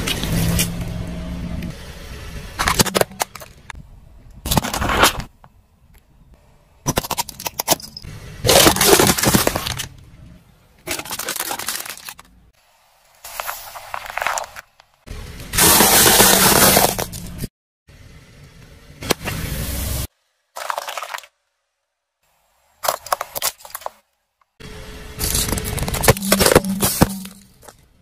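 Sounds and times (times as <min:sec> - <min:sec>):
tyre crushing plastic objects: 0:02.6 - 0:03.7, 0:08.5 - 0:10.0, 0:10.8 - 0:12.3, 0:15.6 - 0:17.4, 0:20.6 - 0:21.3, 0:22.8 - 0:24.0, 0:25.2 - 0:27.8.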